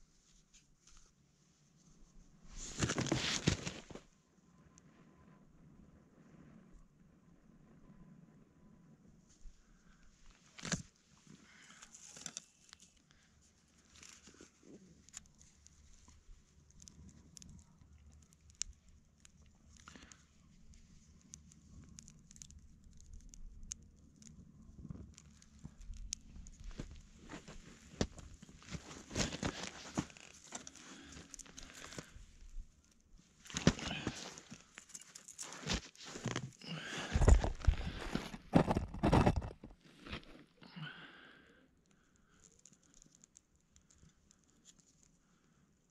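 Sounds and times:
dry tinder rustling and crinkling: 0:02.6 - 0:04.0, 0:10.4 - 0:40.4.

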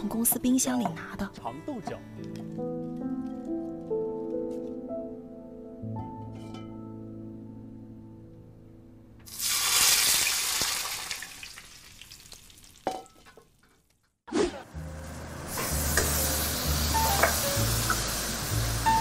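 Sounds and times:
food sizzling in hot oil: 0:09.3 - 0:12.9, 0:15.0 - 0:19.0.

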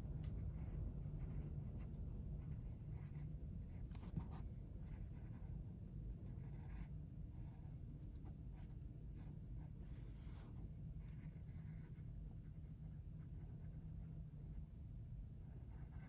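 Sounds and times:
low steady hum: 0:00.0 - 0:16.0
pencil scratching on paper: 0:02.5 - 0:05.6, 0:06.2 - 0:12.1, 0:15.5 - 0:16.0.

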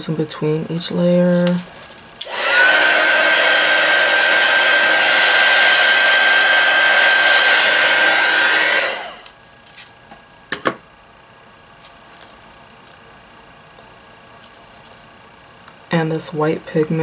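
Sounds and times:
heat gun blowing air with whine: 0:02.2 - 0:09.4.

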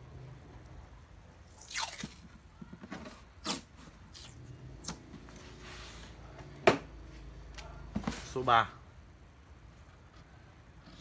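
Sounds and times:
masking tape ripped off roll: 0:01.5 - 0:02.3, 0:03.4 - 0:05.0.

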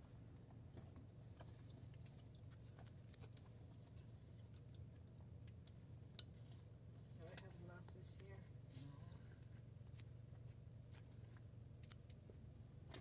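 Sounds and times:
faint clicks and rustles: 0:00.5 - 0:13.0.

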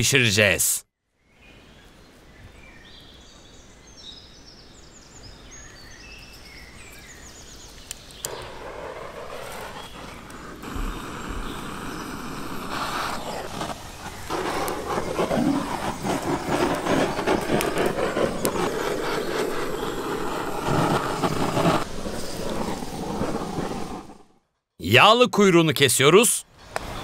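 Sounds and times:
gas torch flame hissing: 0:08.2 - 0:24.3.

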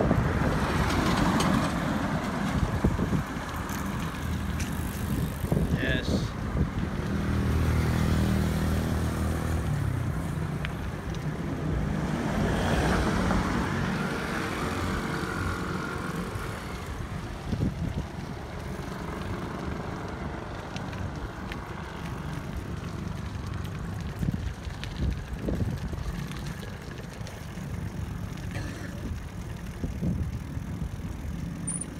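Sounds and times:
wind on microphone: 0:00.0 - 0:03.7, 0:04.4 - 0:07.5, 0:16.2 - 0:18.6, 0:24.0 - 0:26.4, 0:29.0 - 0:31.2
engine hum: 0:00.0 - 0:31.9
road traffic passing: 0:00.0 - 0:31.9.

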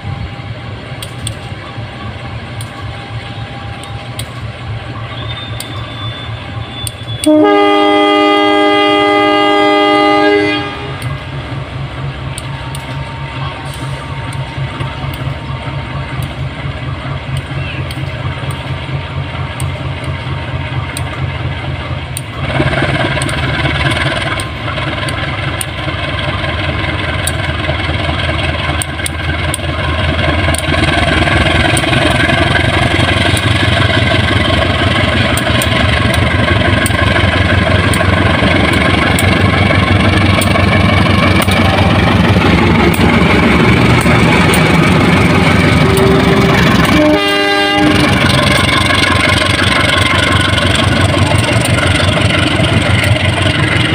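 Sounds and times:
locomotive diesel engine running: 0:00.0 - 0:53.9
wheels clicking over rail joints: 0:01.0 - 0:01.7, 0:20.9 - 0:47.2, 0:47.9 - 0:53.9
locomotive horn: 0:04.8 - 0:11.3, 0:45.0 - 0:48.7.

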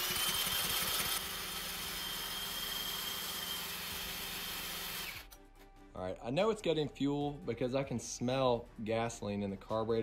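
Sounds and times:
small engine turning over: 0:00.0 - 0:05.3
electric drill whining: 0:00.0 - 0:05.4.

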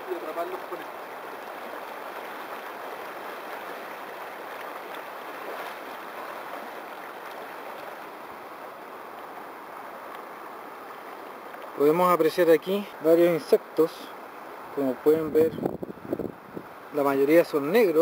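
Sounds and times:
water splashing around legs: 0:00.0 - 0:08.5
river water rushing over stones: 0:00.0 - 0:18.0.

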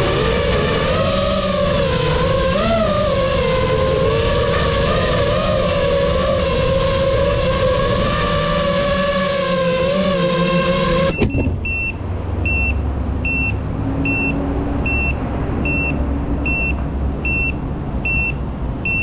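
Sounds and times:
drone motors whining: 0:00.0 - 0:19.0
short high electronic beep: 0:11.1 - 0:19.0.

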